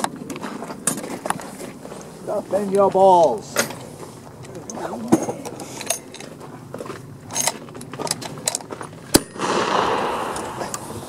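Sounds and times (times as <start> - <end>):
rifle action metal clicks and rattles: 4.6 - 9.1
sharp loud click: 9.2 - 11.0.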